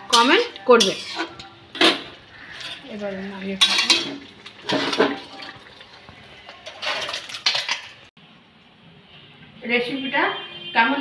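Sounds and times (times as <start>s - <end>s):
steel pan scraping a bowl: 0.0s - 5.6s, 6.4s - 8.1s
liquid sloshing: 1.0s - 8.1s.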